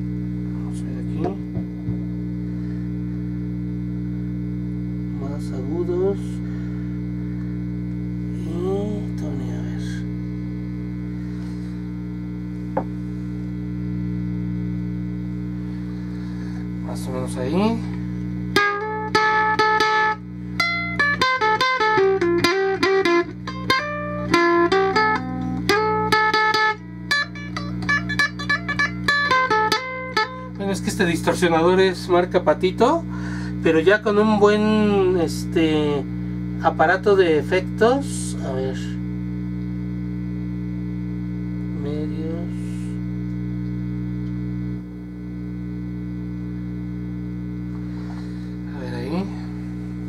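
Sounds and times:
amplifier hum: 0.0s - 50.0s
distorted ukulele notes: 18.2s - 30.9s.

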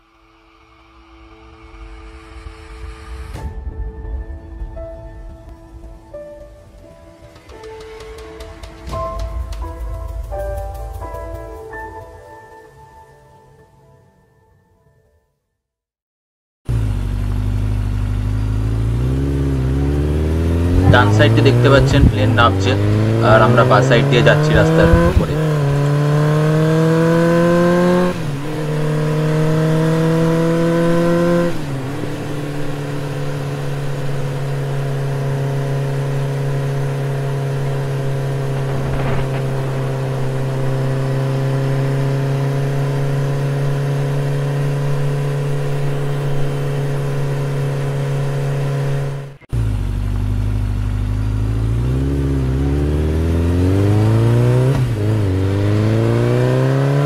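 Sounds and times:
motorcycle engine shifting gears: 16.7s - 57.0s.

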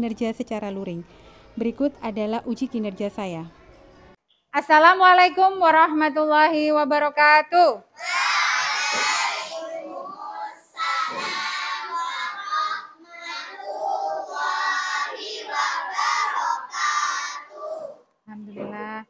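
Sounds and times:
girls chanting in unison: 8.0s - 18.0s.

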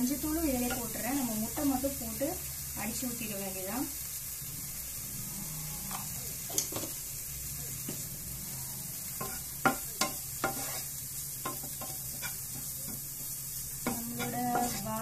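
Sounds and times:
food sizzling in a frying pan: 0.0s - 15.0s
spatula scraping a pan: 8.8s - 15.0s.

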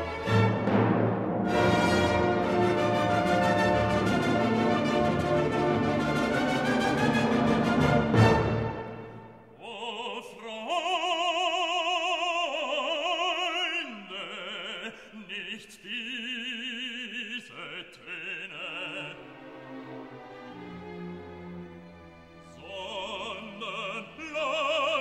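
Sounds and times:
orchestral accompaniment: 0.0s - 9.5s, 19.0s - 25.0s
operatic singing: 1.5s - 21.1s, 22.3s - 25.0s.

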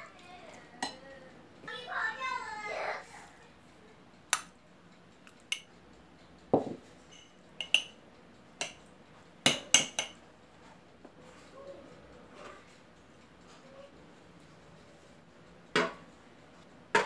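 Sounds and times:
dull knock: 6.6s - 6.8s
metal utensil clinking on glass: 7.1s - 8.0s.

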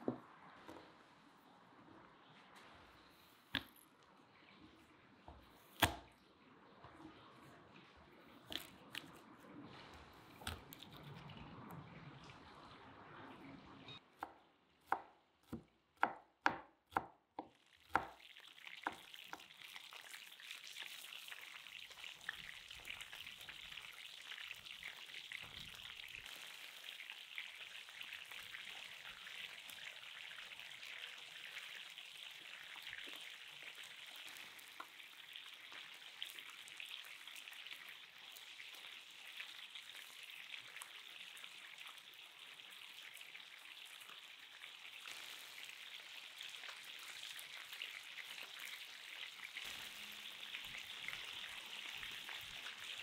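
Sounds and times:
knife chopping on wooden board: 5.8s - 6.0s, 14.9s - 17.1s, 17.9s - 18.2s
chicken sizzling in frying pan: 17.6s - 53.0s.

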